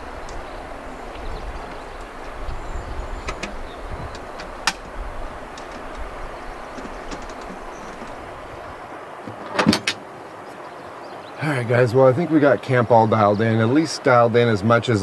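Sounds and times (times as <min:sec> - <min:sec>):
wind rumbling on microphone: 0:00.0 - 0:09.9
light clicks: 0:03.2 - 0:08.2.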